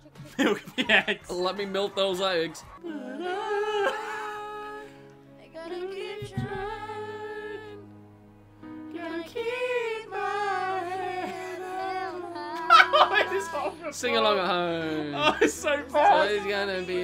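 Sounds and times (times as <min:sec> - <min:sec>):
person singing long notes: 0:02.8 - 0:07.8.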